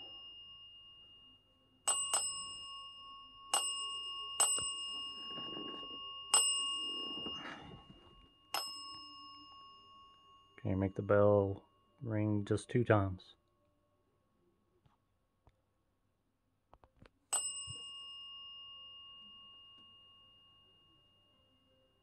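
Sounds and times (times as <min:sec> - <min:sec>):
desk bell dinging: 0:00.0 - 0:12.4, 0:17.3 - 0:21.6.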